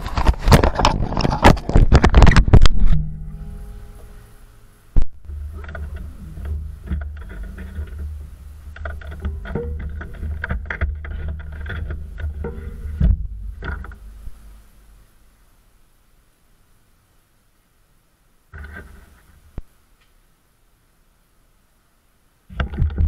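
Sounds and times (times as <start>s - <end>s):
clicks and rustles: 0.0s - 4.2s, 5.0s - 14.6s, 18.5s - 20.2s, 22.5s - 23.0s
thump: 12.4s - 14.0s.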